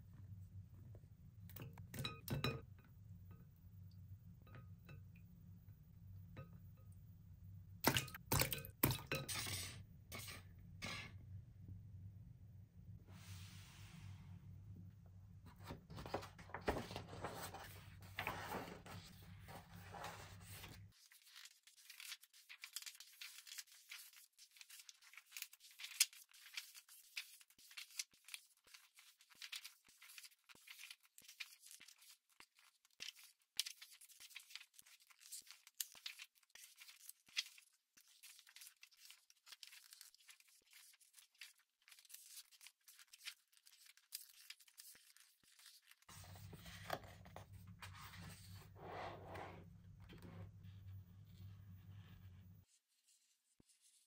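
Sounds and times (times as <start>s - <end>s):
paper pages rustling: 15.5s - 48.6s.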